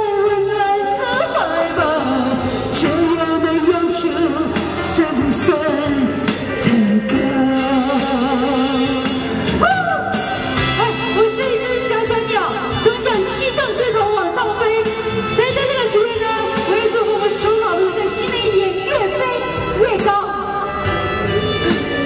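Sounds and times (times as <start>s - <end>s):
woman singing pop ballad: 0.0s - 20.7s
pop backing track: 0.0s - 22.0s.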